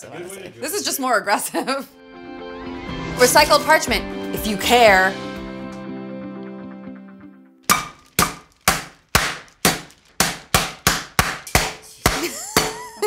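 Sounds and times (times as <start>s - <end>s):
skillet pounding meat: 7.7s - 12.9s.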